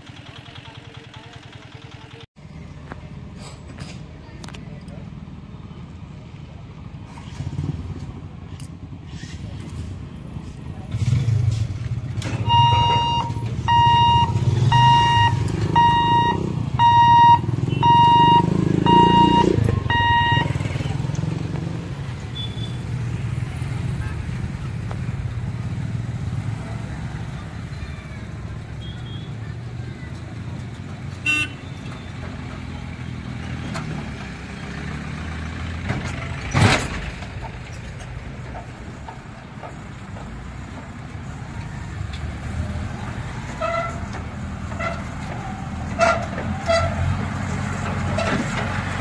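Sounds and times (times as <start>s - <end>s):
motorcycle engines idling: 0.0s - 35.4s, 36.1s - 46.8s
truck driving past over rails: 9.4s - 28.8s, 30.0s - 49.0s
level crossing warning buzzer beeping: 12.4s - 20.6s.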